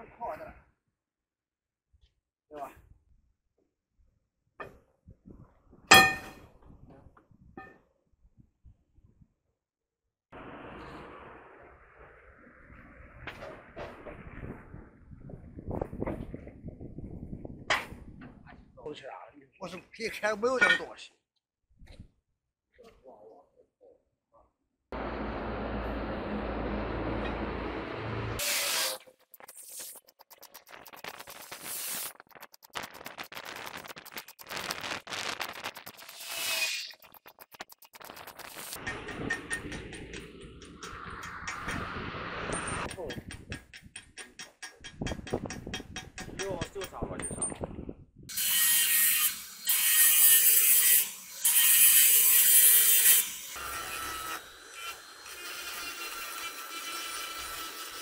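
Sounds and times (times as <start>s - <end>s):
arc welding crackling: 28.4s - 41.7s.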